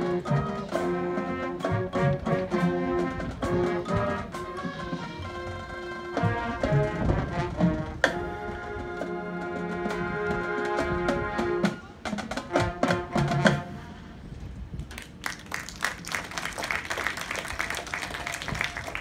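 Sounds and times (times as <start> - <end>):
band and drum hits: 0.0 - 8.3, 9.4 - 13.8
marching band brass chord: 0.0 - 14.3
audience applause: 15.0 - 19.0.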